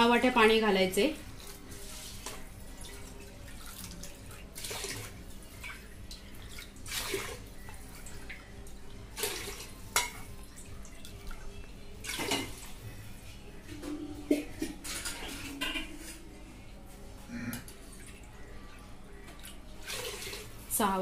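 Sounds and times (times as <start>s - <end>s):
water splashing into a pot: 2.0s - 12.8s.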